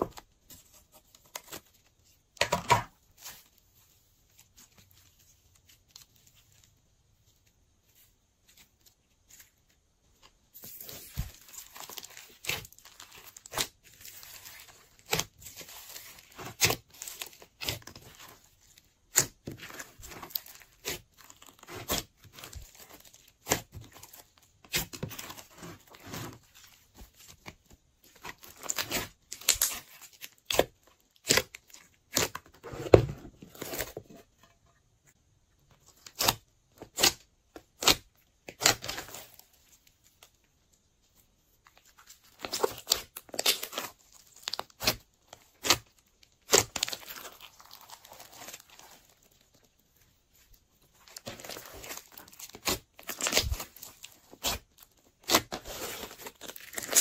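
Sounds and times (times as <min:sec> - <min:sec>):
hands squishing slime: 0:10.6 - 0:32.4, 0:50.3 - 0:57.0.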